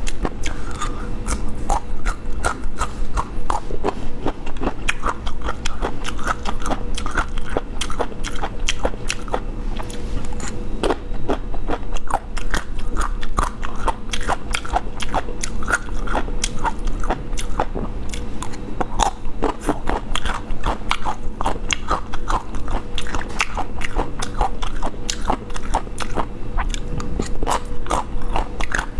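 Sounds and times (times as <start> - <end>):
person chewing crunchy food: 0.0 - 28.9.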